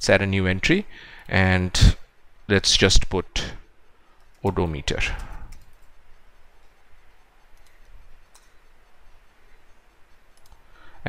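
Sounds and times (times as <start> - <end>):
low steady hiss: 0.0 - 11.0
computer keyboard clicks: 5.1 - 9.1, 10.1 - 10.7.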